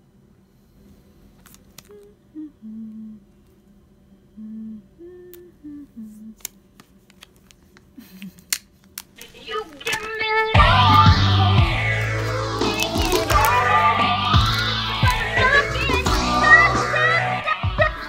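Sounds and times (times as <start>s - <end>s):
person humming: 1.8s - 3.4s, 4.3s - 6.5s, 9.2s - 18.0s.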